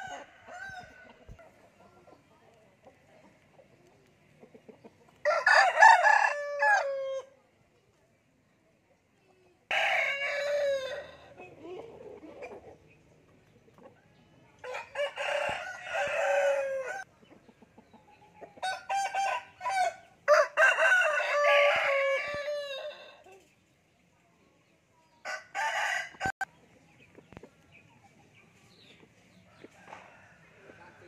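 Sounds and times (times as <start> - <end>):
roosters crowing: 0.0 - 1.4, 5.2 - 7.3, 9.7 - 11.4, 14.6 - 17.1, 18.6 - 23.3, 25.2 - 26.4, 29.6 - 31.0.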